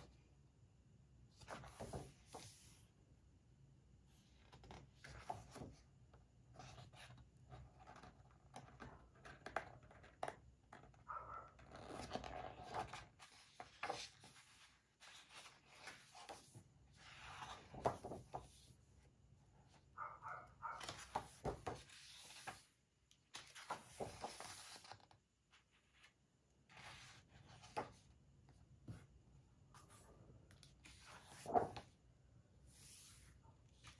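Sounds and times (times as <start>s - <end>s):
paper pages rustling: 30.8s - 31.9s.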